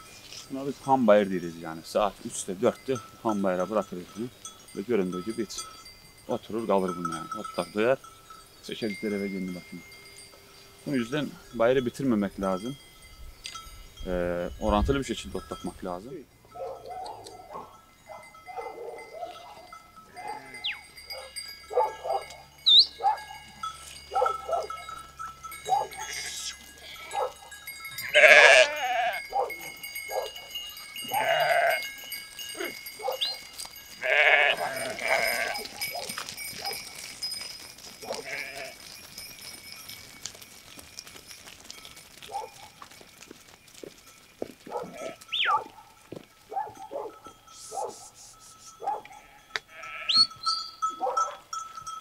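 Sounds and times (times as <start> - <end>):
sheep bleating: 19.2 - 20.8, 25.8 - 27.4, 28.0 - 29.2, 31.0 - 31.9, 34.0 - 35.8, 38.0 - 38.9, 44.8 - 45.5, 49.0 - 50.3.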